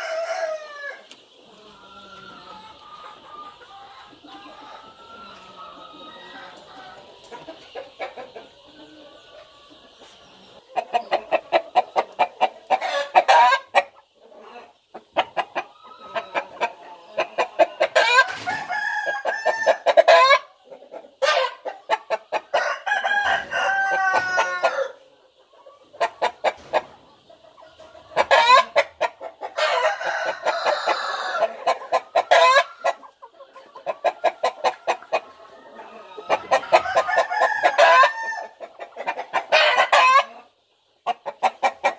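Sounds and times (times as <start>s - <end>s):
rooster crowing: 0.0s - 1.0s, 18.2s - 19.8s, 22.6s - 25.0s, 29.6s - 31.6s, 36.0s - 38.5s.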